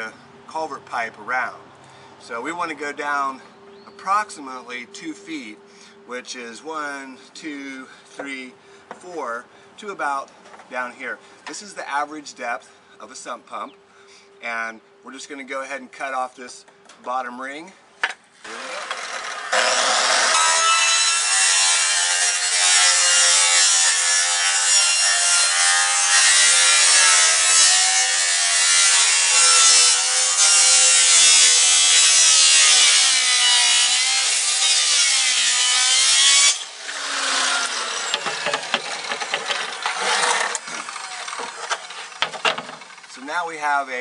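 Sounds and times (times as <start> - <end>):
circular saw cutting plastic pipe: 18.4 - 43.2
clicks and knocks: 41.4 - 42.8.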